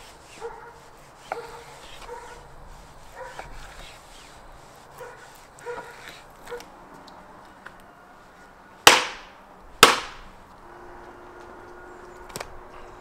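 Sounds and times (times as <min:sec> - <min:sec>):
hatchet chopping firewood: 0:08.8 - 0:10.3.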